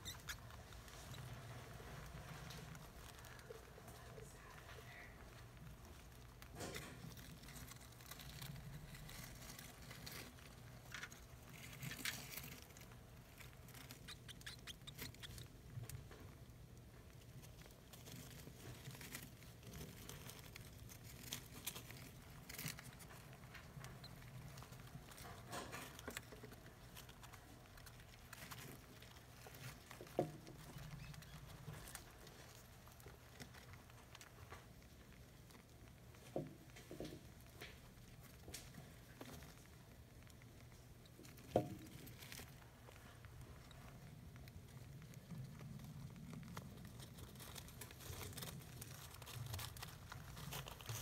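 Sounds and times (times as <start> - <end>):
rustling of shredded paper bedding: 44.4 - 51.0.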